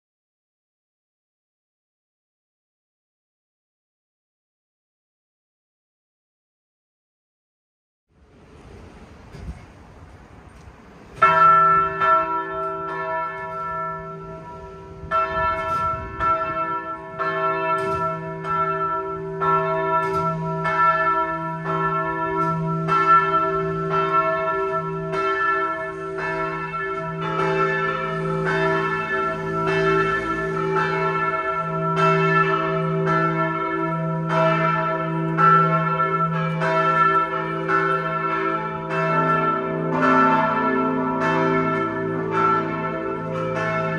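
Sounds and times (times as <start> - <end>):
church bells ringing: 10.5 - 43.9.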